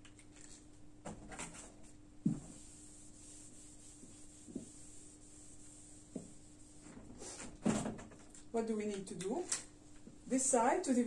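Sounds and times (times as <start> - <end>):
eraser rubbing on whiteboard: 2.4 - 7.5.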